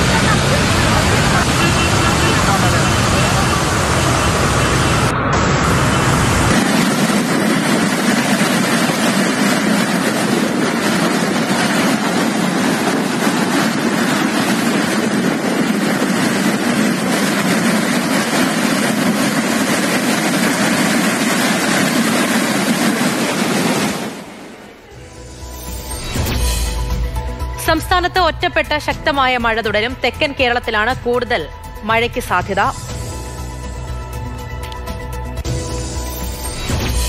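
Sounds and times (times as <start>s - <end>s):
floodwater rushing in a torrent: 0.0s - 5.1s.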